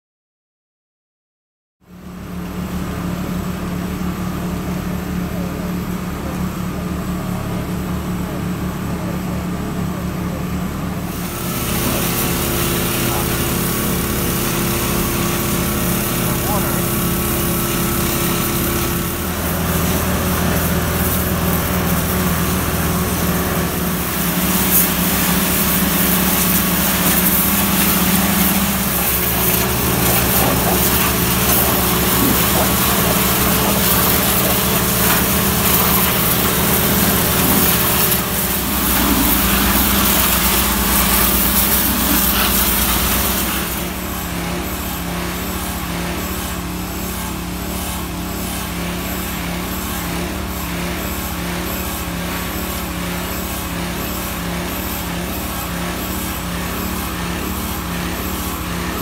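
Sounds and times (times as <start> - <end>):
tractor engine running: 11.3 - 45.9
steady hiss: 19.7 - 44.2.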